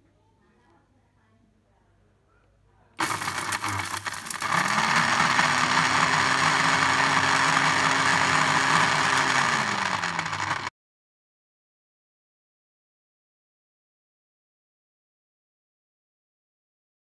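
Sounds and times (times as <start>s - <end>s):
blender blade chopping fruit: 3.0s - 10.7s
blender motor running: 3.0s - 10.7s.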